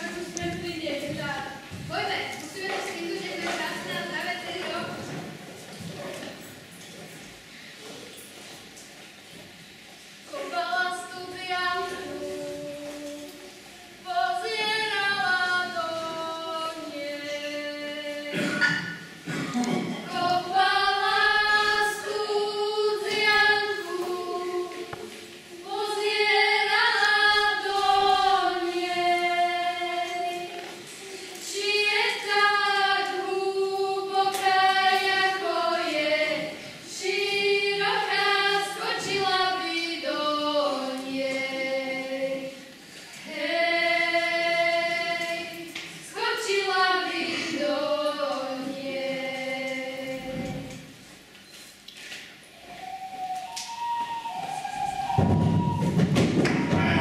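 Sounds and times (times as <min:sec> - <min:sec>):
girls singing unaccompanied: 0:00.0 - 0:06.7, 0:10.2 - 0:51.3, 0:52.6 - 0:57.0.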